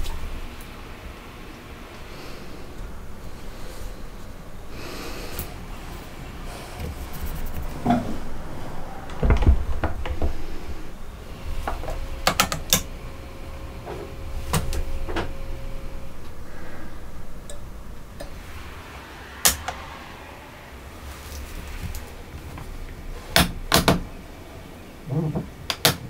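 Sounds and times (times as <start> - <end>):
tools clicking and knocking: 11.7 - 12.9.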